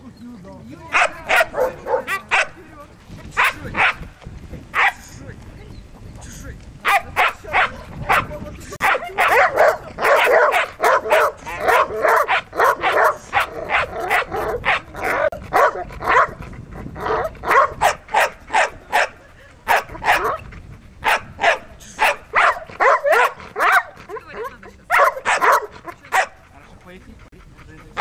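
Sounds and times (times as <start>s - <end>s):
dog barking rapidly: 0.9s - 2.6s, 3.4s - 4.1s, 4.8s - 5.0s, 6.8s - 26.4s.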